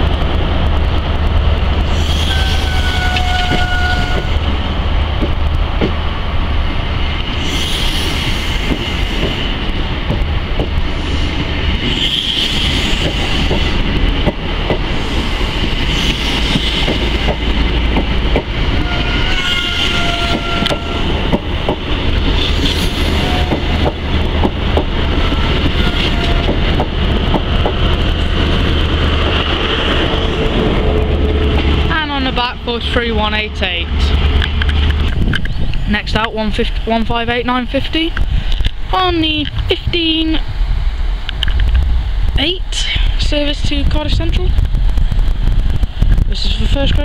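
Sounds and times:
train rail rumble: 0.0s - 47.0s
wheels clicking over rail joints: 11.7s - 29.6s.

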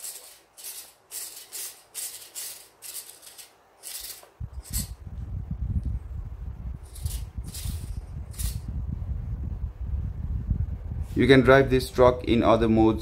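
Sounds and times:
steering servos buzzing: 0.0s - 5.0s.

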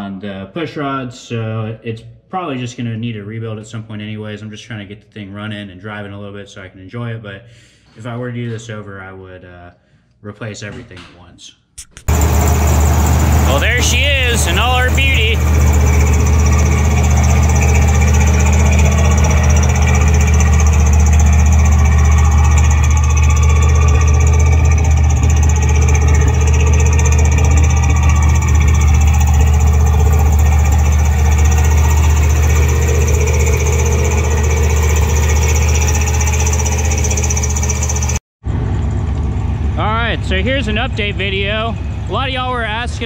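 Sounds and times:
engine idling: 12.1s - 43.0s.

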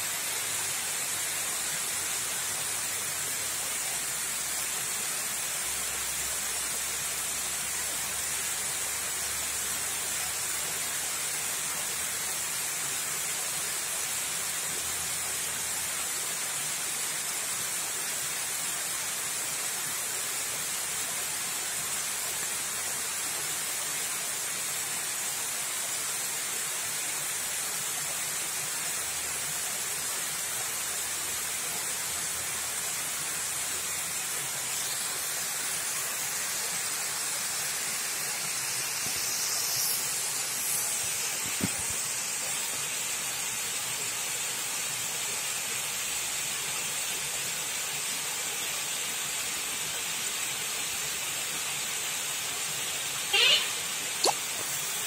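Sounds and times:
waterfall rushing: 26.9s - 44.0s.

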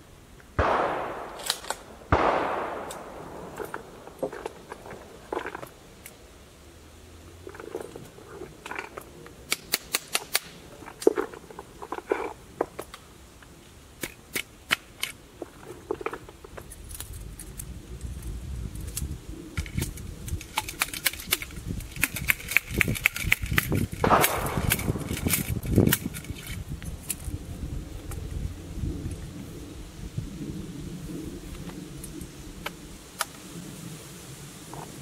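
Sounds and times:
rustling: 0.9s - 6.4s, 7.2s - 13.8s, 14.8s - 28.3s
rifle loading clicks and taps: 1.2s - 1.9s, 2.8s - 6.2s, 16.6s - 27.3s.

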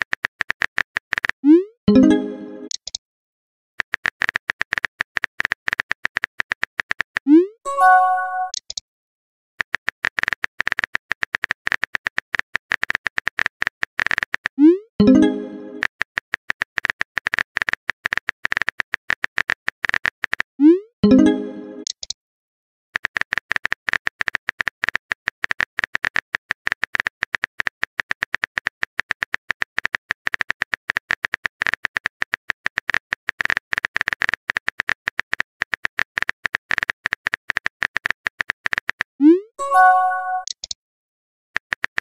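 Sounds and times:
short chime: 7.7s - 8.6s, 39.6s - 40.5s.

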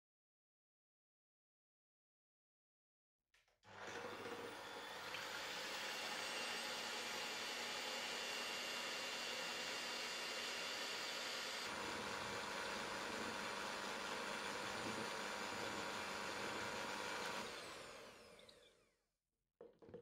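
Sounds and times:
electric hand mixer whipping cream: 3.7s - 18.9s
mixer motor spinning down: 3.7s - 19.0s.

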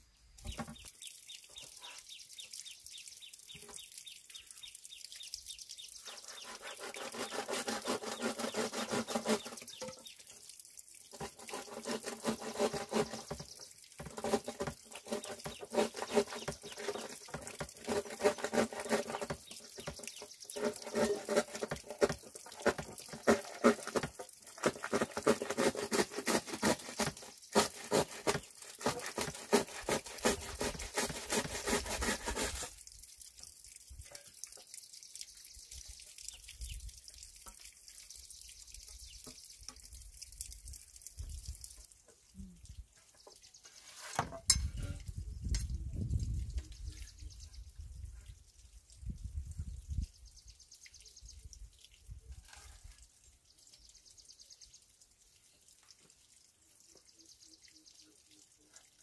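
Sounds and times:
tapping and scraping on bamboo: 0.4s - 1.0s, 6.0s - 10.3s, 11.1s - 32.8s, 43.2s - 45.8s.

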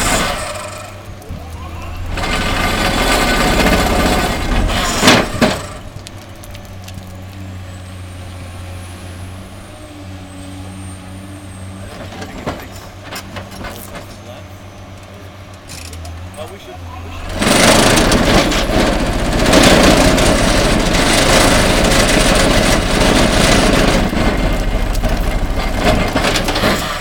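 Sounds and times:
rock breaker rattling grind: 0.0s - 7.4s, 15.7s - 27.0s
excavator diesel engine hum: 0.0s - 27.0s
sharp rock cracks: 4.6s - 7.4s.

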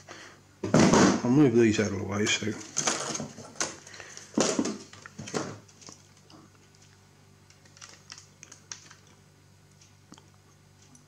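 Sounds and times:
circuit boards knocking and rattling: 0.6s - 1.2s, 2.7s - 5.6s.

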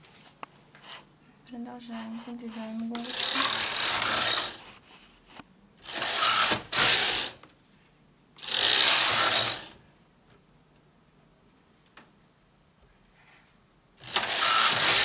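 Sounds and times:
knitting machine carriage passing: 3.0s - 4.7s, 5.8s - 7.4s, 8.4s - 9.8s, 14.0s - 15.0s.

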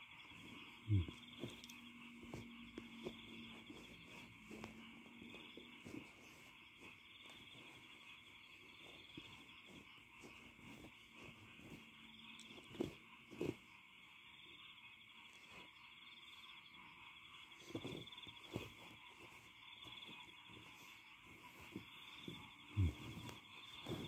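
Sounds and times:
handling thumps and rustles: 0.0s - 13.9s, 17.5s - 24.0s.

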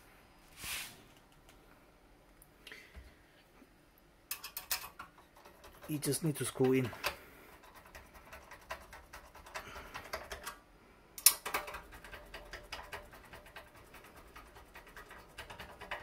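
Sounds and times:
screwdriver clicking in metal cage: 4.3s - 7.2s, 11.2s - 13.7s.

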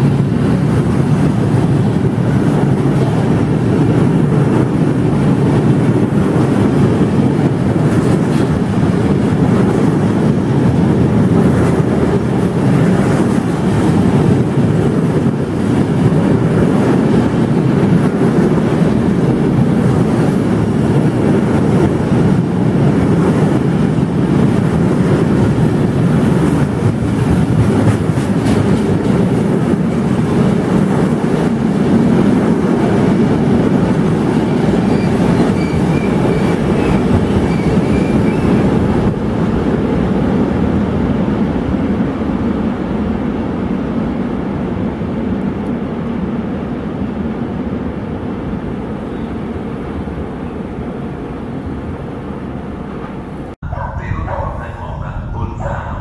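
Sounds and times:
freight train rumbling past: 0.0s - 56.0s
train wheel clacks: 25.2s - 39.1s.

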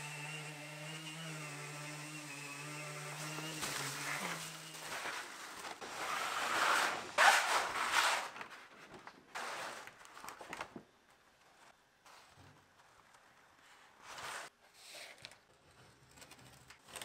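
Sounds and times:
veneer sheet rustling: 3.0s - 14.5s.

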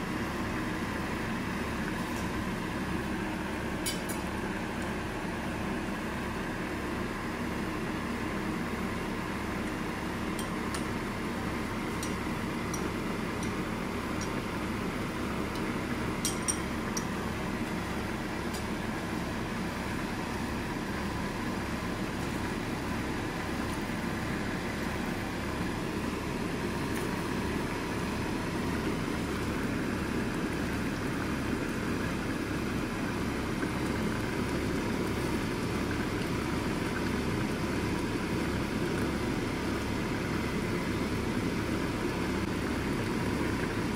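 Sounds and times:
broth simmering hum and hiss: 0.0s - 43.9s.

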